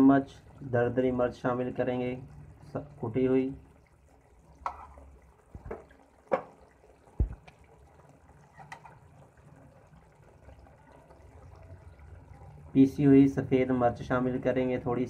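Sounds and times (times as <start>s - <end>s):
sauce popping and gurgling: 2.3s - 12.7s.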